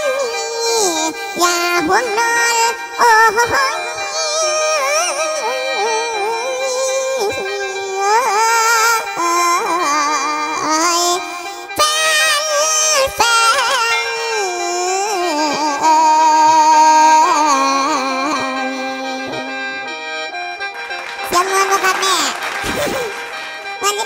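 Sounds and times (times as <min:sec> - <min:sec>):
person singing with vibrato: 0:00.0 - 0:19.9, 0:21.2 - 0:24.0
sustained keyboard drone: 0:11.6 - 0:24.0.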